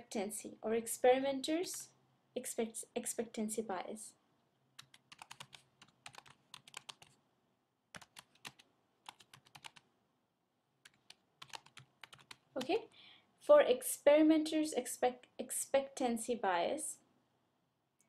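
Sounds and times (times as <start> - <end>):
keyboard typing: 4.8 - 7.2, 7.9 - 9.9, 10.8 - 12.8.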